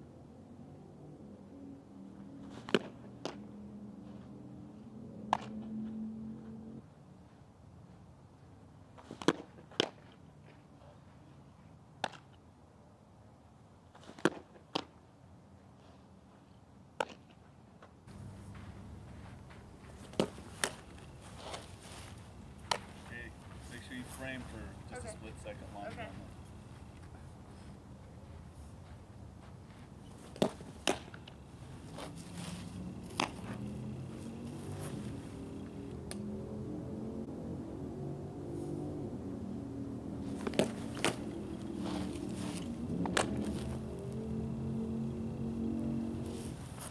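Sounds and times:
faint outdoor hiss: 4.7s - 46.9s
low droning hum: 18.1s - 46.9s
ball smacking into leather glove: 20.0s - 20.8s, 22.6s - 23.0s, 30.2s - 31.3s, 33.1s - 33.4s, 40.3s - 43.6s.

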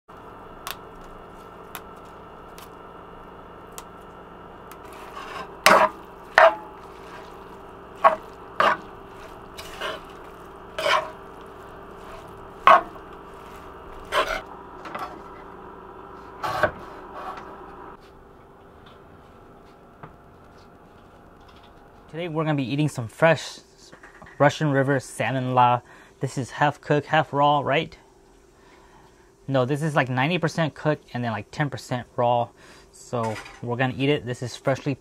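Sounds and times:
steady hum: 0.1s - 33.1s
spatula scraping frying pan: 4.8s - 15.4s.

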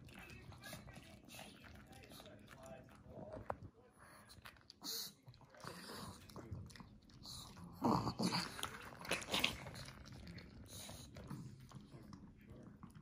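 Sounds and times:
dogs chewing and crunching: 0.0s - 13.0s
dog growling snarl: 7.5s - 10.0s.

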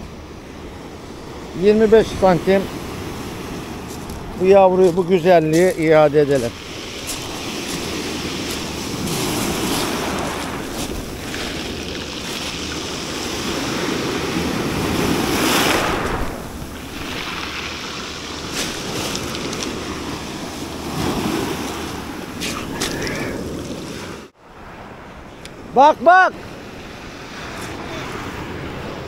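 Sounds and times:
waves washing over pebbles: 1.5s - 24.3s.

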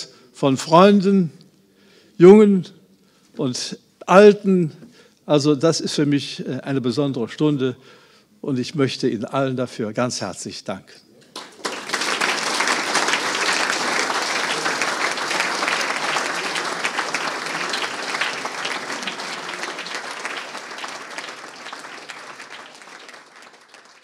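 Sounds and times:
audience applauding: 11.3s - 24.0s.

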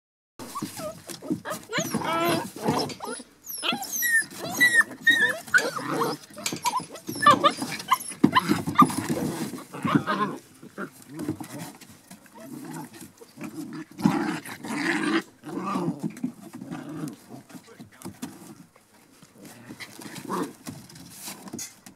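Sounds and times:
puppies yipping and squealing: 0.4s - 11.2s.

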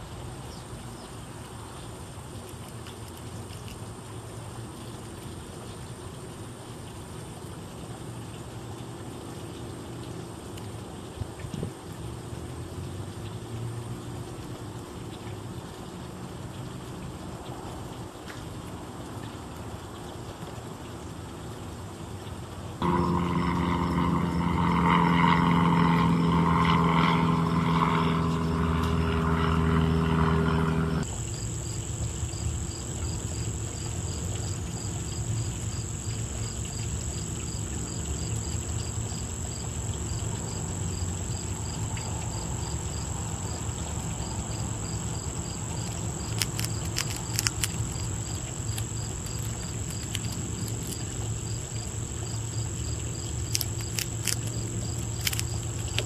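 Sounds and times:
motor engine humming: 22.8s - 31.2s
crickets chirping: 22.8s - 56.0s
insects buzzing: 22.8s - 56.0s
sharp clicks: 46.3s - 48.0s, 53.5s - 54.6s, 55.2s - 56.0s.

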